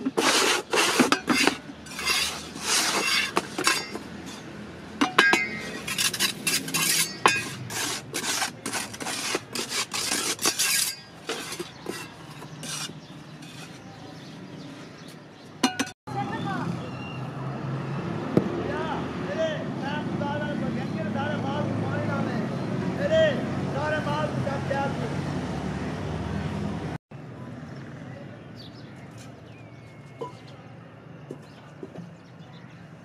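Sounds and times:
trowel scraping wet mortar: 0:00.0 - 0:04.5, 0:05.4 - 0:15.2.

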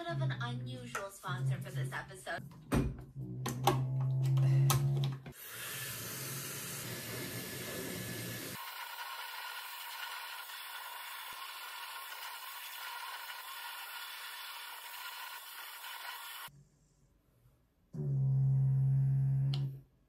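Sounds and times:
hair dryer blowing: 0:05.4 - 0:13.4.

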